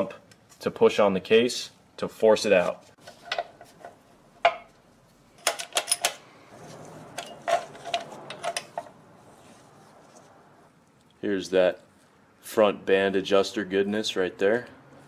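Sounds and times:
metal parts clicking and clinking: 0:05.4 - 0:06.2, 0:07.1 - 0:09.0.

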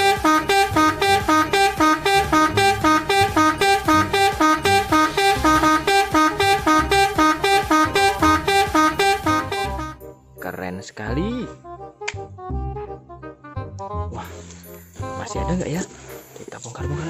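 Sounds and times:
fast plucked melody: 0:00.0 - 0:10.0.

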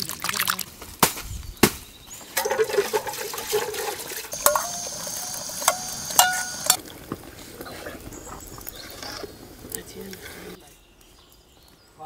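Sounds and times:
ladle clinking on metal pot: 0:02.3 - 0:06.8
liquid pouring into metal pot: 0:02.3 - 0:06.8.

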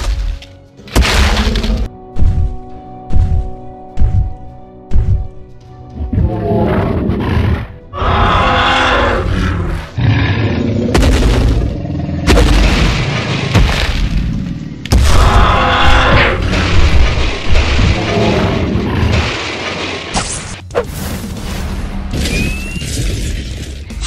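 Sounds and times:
background music: 0:00.0 - 0:24.0
creature roars: 0:06.2 - 0:11.0, 0:15.1 - 0:16.7
heavy booms and crashes: 0:10.9 - 0:20.1.

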